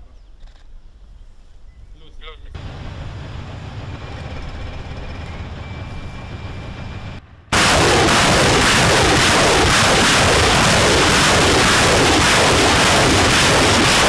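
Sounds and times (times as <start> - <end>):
rocket launcher salvo roar: 7.5 - 14.0.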